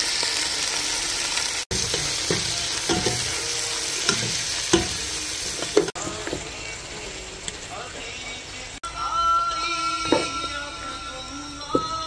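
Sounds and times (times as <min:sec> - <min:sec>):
vegetables sizzling in hot oil: 0:00.0 - 0:08.8
spatula scraping pan: 0:01.7 - 0:06.6.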